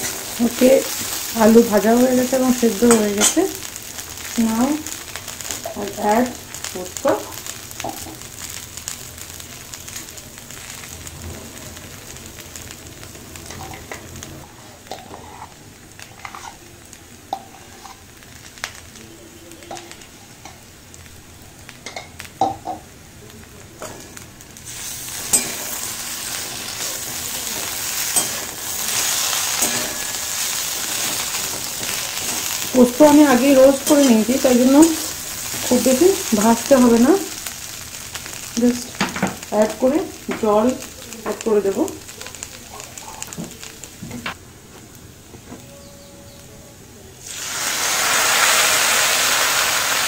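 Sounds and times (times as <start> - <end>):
food sizzling in pan: 0.0 - 50.0
metal spatula stirring: 14.9 - 16.6, 25.1 - 35.7.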